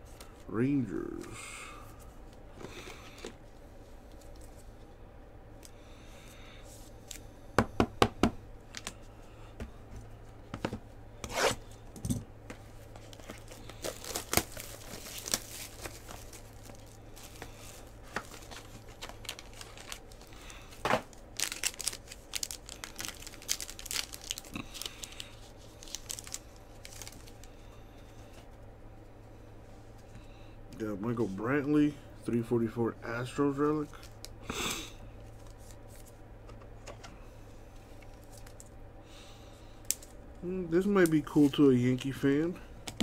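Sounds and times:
foil pack tearing and crinkling: 0:13.0 - 0:27.5.

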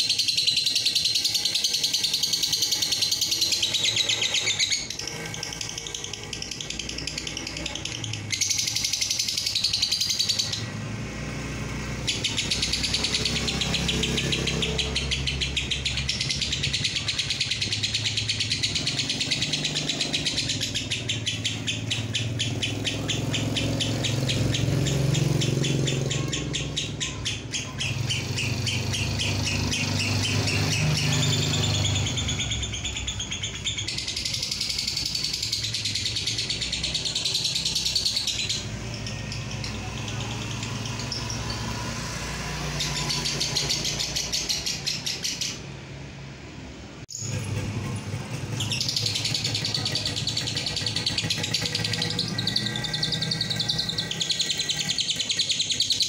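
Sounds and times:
lovebird chattering trill: 0:00.0 - 0:10.8, 0:11.8 - 0:45.7, 0:47.1 - 0:56.0.

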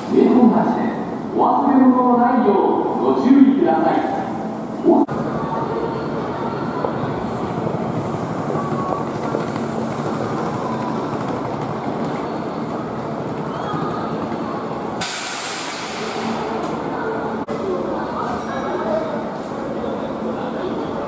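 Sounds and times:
electric train humming: 0:00.0 - 0:15.1
compressed air hissing: 0:15.0 - 0:16.2.

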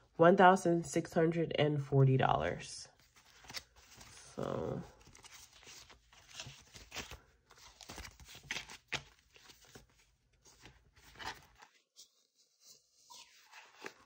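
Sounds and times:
plastic binder pocket crinkling: 0:03.0 - 0:12.2, 0:13.1 - 0:14.0
banknotes rustling: 0:03.0 - 0:14.0.

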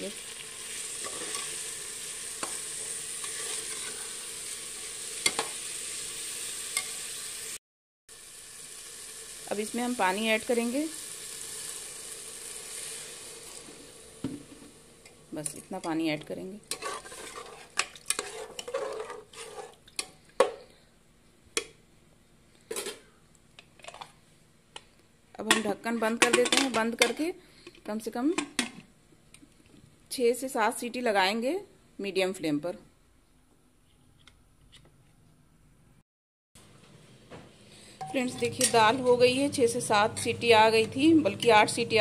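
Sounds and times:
lentils sizzling in oil: 0:00.0 - 0:20.8, 0:37.8 - 0:42.0
metal spatula scraping pot: 0:01.0 - 0:01.6, 0:02.4 - 0:04.2, 0:16.7 - 0:20.1, 0:38.0 - 0:39.2.

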